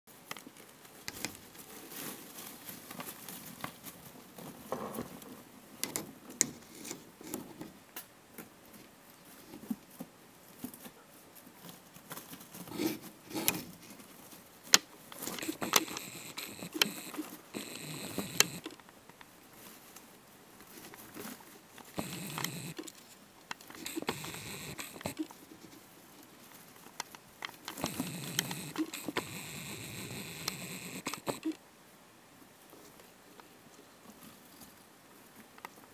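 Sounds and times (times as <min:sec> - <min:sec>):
rustling and crackling of paper: 0:00.2 - 0:05.4
sharp clicks: 0:15.4 - 0:18.8, 0:22.0 - 0:23.0, 0:23.6 - 0:25.3, 0:27.7 - 0:31.6.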